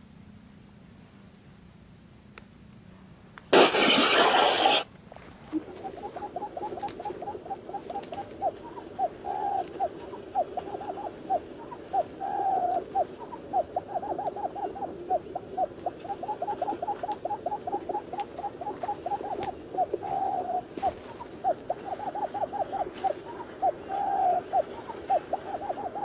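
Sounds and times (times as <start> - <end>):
quail calls from a speaker: 5.5 - 26.0.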